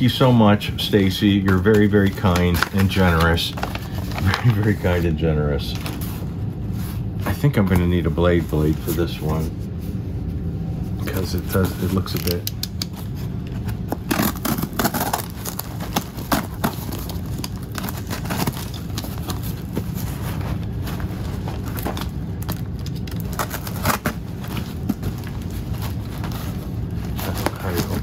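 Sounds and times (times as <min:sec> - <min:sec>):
cardboard scraping and crackling: 0:00.0 - 0:09.5, 0:11.0 - 0:12.4, 0:13.0 - 0:28.0
knife cutting tape and cardboard: 0:14.0 - 0:15.3.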